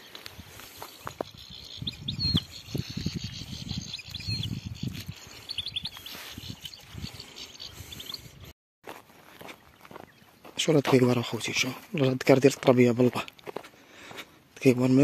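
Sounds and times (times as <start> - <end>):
footsteps crunching through dry grass: 0.0 - 1.8, 2.4 - 8.0, 8.8 - 15.0
goldfinch chirps: 0.9 - 8.4.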